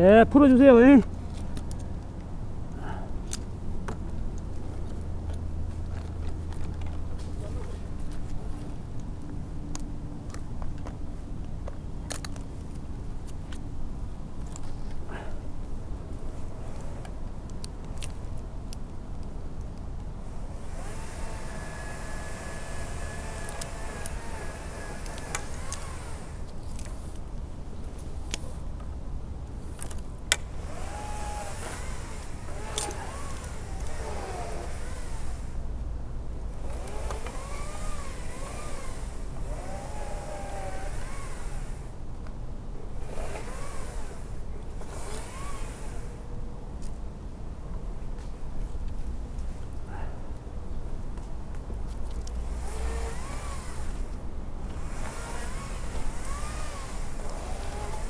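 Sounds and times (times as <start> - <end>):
steady low hum: 0.0 - 58.0
rope and hardware clicking on tree: 1.2 - 13.7, 16.2 - 35.6, 36.5 - 42.4, 43.0 - 46.2, 51.1 - 58.0
chainsaw motor whine: 20.2 - 26.9, 30.3 - 35.7, 36.5 - 42.0, 42.9 - 46.3, 52.2 - 58.0.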